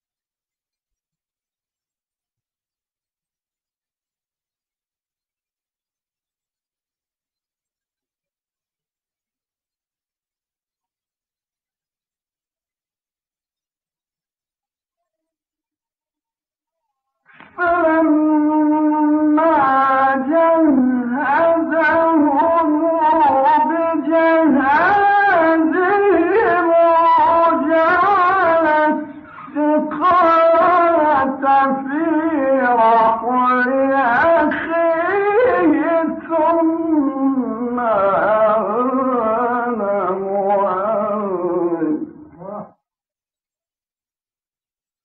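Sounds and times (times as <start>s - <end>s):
man chanting melismatic recitation: 17.6s - 42.8s.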